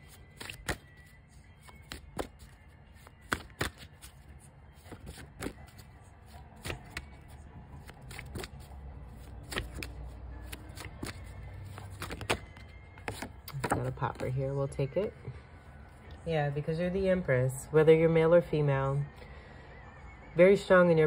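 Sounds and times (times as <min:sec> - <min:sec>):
cards being shuffled: 0:00.0 - 0:14.4.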